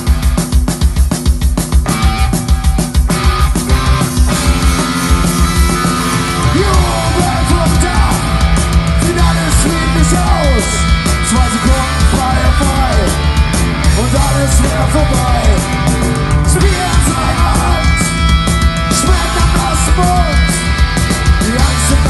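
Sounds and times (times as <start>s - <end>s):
drums: 0.0s - 22.0s
electric guitars: 1.6s - 22.0s
person singing: 6.1s - 13.2s, 13.9s - 20.6s, 21.4s - 22.0s.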